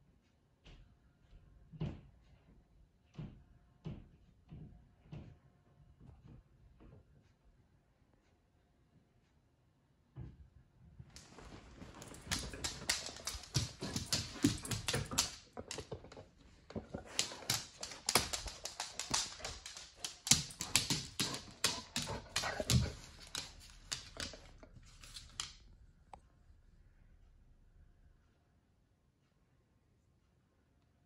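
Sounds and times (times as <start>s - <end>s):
dog claws tapping on wooden floor: 11.2s - 25.6s.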